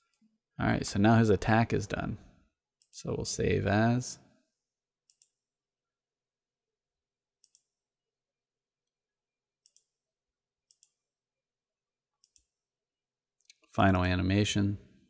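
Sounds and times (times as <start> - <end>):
computer mouse clicking: 5.0 - 5.4, 7.4 - 7.8, 9.6 - 10.0, 10.7 - 11.0, 12.2 - 12.6.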